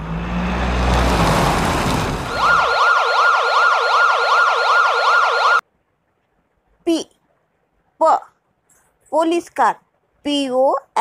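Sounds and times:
truck engine rumbling: 0.0 - 3.5
police siren wailing: 2.2 - 5.6.

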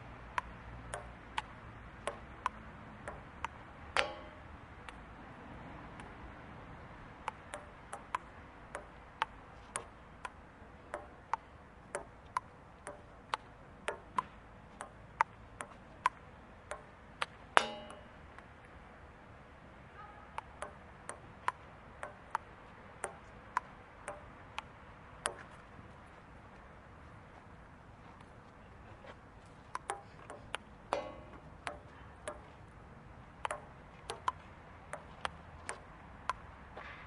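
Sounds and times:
ping-pong ball clicking: 0.3 - 5.0, 7.2 - 18.5, 20.3 - 25.6, 29.7 - 32.5, 33.4 - 36.4.

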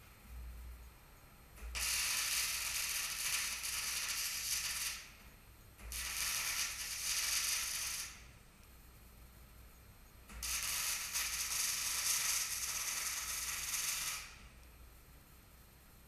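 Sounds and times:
arc welding sizzling crackle: 1.6 - 8.5, 10.3 - 14.7.

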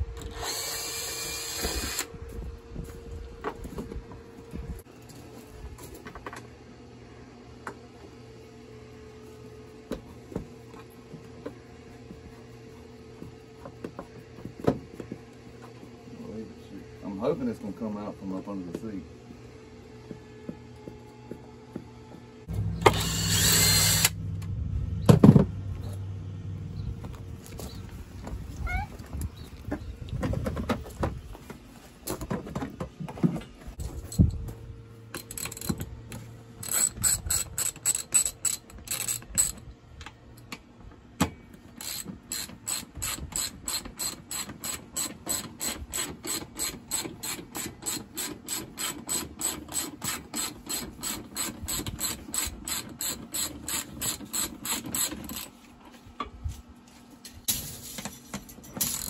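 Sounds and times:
ratchet wrench clicking: 22.9 - 24.2, 36.6 - 39.6, 41.8 - 55.5.

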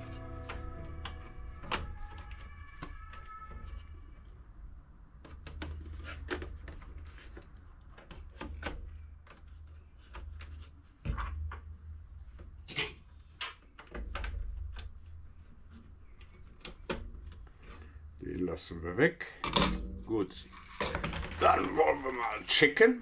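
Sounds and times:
plastic parts clicking and knocking: 5.2 - 15.0, 19.4 - 22.4.

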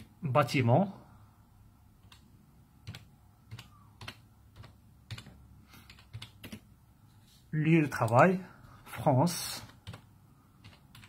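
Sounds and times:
keyboard keystrokes: 2.8 - 6.7, 9.6 - 11.0.

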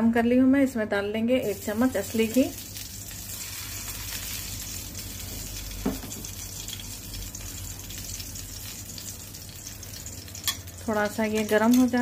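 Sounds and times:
ghee sizzling in a pan: 1.4 - 12.0
knock: 5.8 - 6.2.

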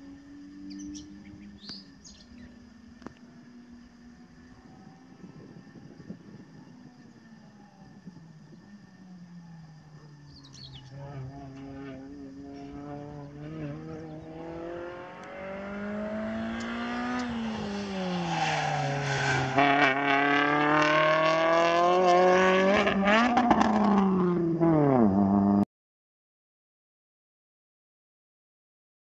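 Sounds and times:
racing car engine revving: 9.8 - 25.6.

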